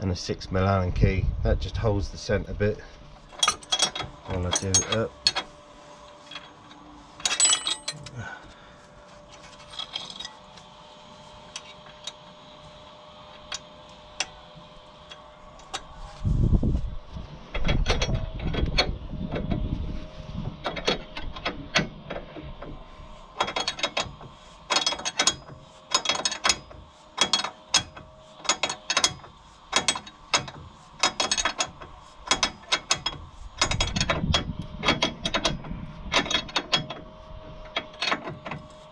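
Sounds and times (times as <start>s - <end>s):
metal tools clicking on nut: 3.4s - 5.4s.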